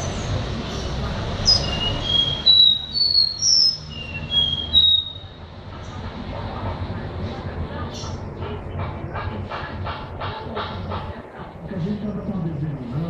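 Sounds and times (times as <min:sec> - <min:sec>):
bird singing whistled notes: 0:01.4 - 0:05.4.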